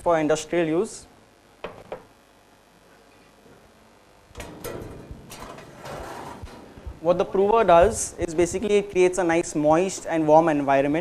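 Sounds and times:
metal tray sliding in: 4.4 - 6.6.

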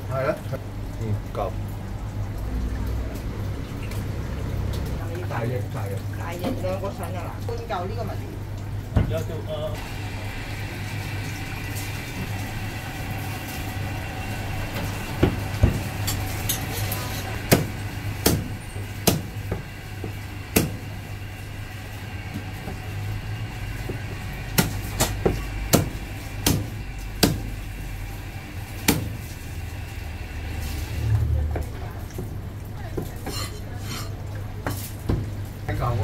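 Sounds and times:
cleaver chopping on wooden block: 17.5 - 19.6, 24.6 - 27.5.

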